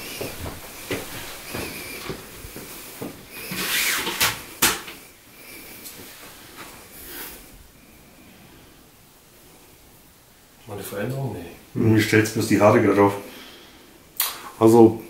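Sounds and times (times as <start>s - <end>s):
footsteps on tiled floor: 0.0s - 5.1s
sharp clicks: 14.2s - 14.4s.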